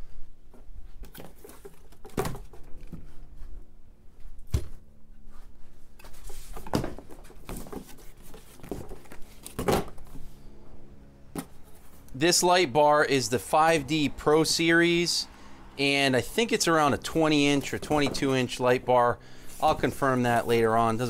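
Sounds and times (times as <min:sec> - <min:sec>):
paper and cardboard rustling: 0:00.9 - 0:03.6, 0:05.3 - 0:10.3.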